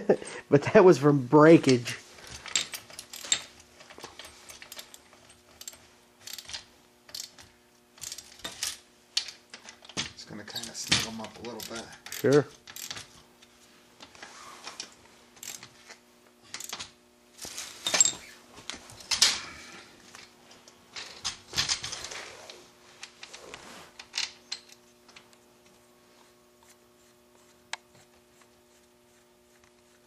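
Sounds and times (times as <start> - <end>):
faint hum: 0.0 - 30.0
metal parts clinking and clanking: 1.7 - 13.1, 15.4 - 18.3, 19.0 - 19.5, 21.0 - 22.3, 24.0 - 25.2.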